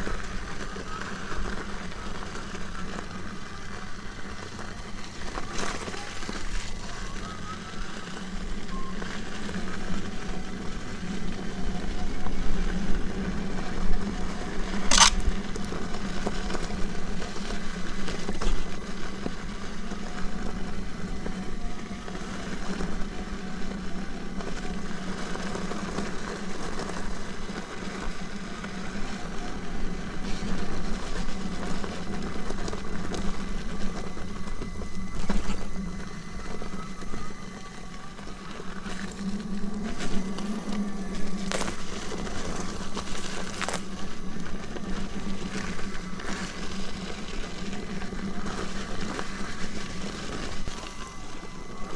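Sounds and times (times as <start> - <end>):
electric motor whine: 0.0 - 51.9
tyre rumbling on gravel: 0.0 - 51.9
sharp click: 14.9 - 15.2.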